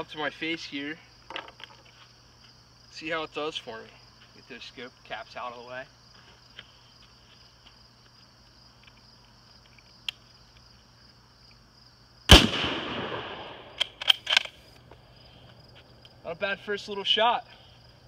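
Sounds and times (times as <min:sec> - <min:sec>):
rifle shot echoing: 0:12.3 - 0:14.4
rifle bolt clicks: 0:13.7 - 0:14.6.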